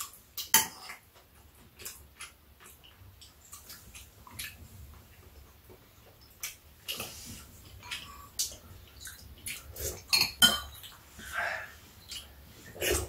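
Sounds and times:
metal spoons clinking against bowls: 10.1 - 10.8.

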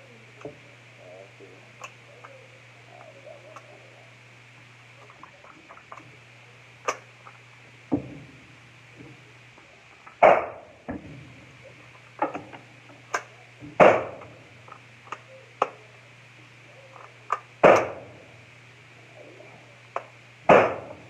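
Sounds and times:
faint clicks and knocks: 4.5 - 6.2
gunshots echoing: 13.8 - 14.2, 17.6 - 18.0, 20.5 - 21.0.

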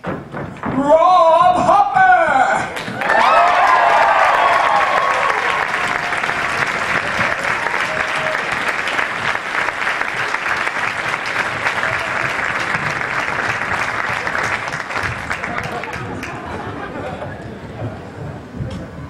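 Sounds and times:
shouts and cheers: 0.8 - 8.8
audience applauding: 2.7 - 17.4.

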